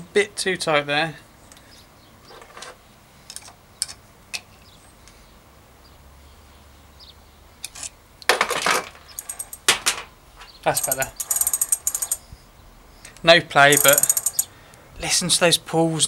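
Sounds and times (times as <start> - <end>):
metal spanner clicks and clinks: 9.0 - 10.0, 10.7 - 12.2, 13.1 - 14.5.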